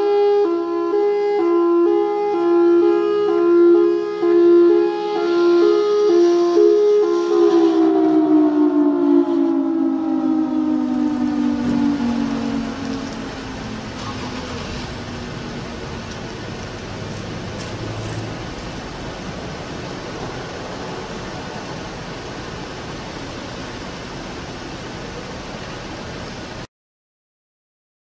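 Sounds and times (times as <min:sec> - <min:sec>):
fire siren winding down: 0:00.0 - 0:24.9
traffic noise: 0:00.0 - 0:26.7.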